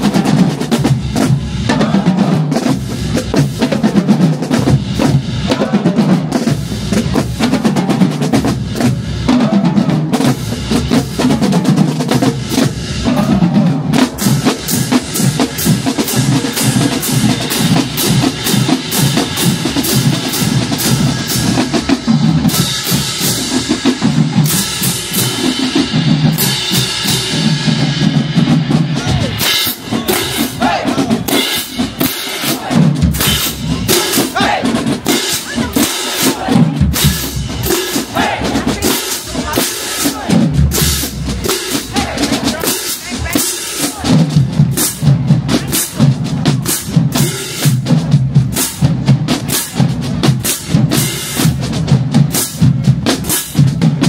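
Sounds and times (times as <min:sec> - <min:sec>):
drumline playing a cadence: 0:00.0 - 0:54.0.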